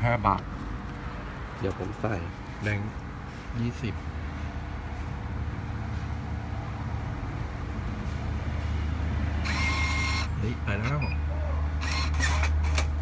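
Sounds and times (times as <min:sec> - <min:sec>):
banknote acceptor motor whirring: 0:09.4 - 0:10.4.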